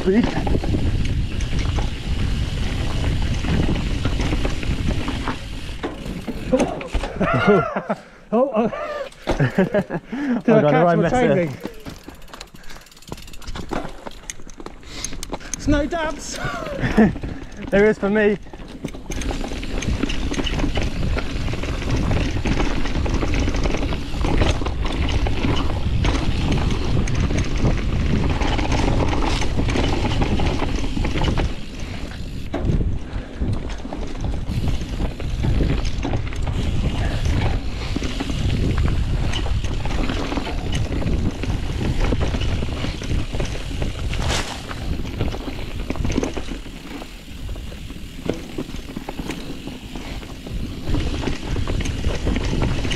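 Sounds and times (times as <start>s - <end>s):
wind buffeting microphone: 0.0s - 6.6s, 18.4s - 52.9s
bike knocks and rattles: 0.0s - 7.6s, 9.2s - 10.0s, 11.0s - 52.9s
bike tyres rumbling on dirt: 0.0s - 7.8s, 9.2s - 52.9s.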